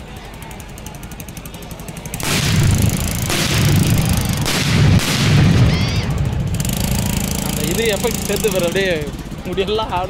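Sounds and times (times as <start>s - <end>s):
firecrackers crackling: 2.0s - 9.0s.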